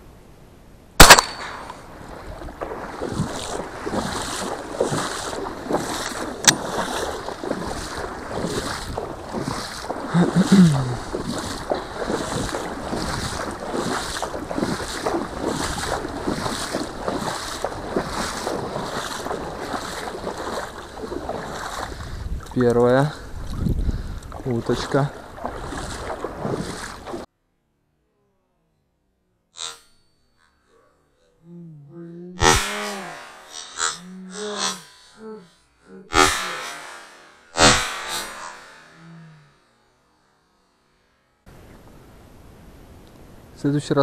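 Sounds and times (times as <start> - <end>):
person wading and splashing: 1.0 - 27.3, 32.4 - 35.3, 36.1 - 39.3.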